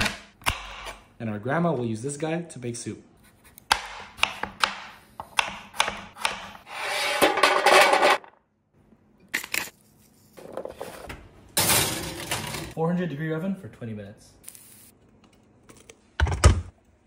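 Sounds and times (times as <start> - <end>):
knife chopping on cutting board: 3.5 - 6.6.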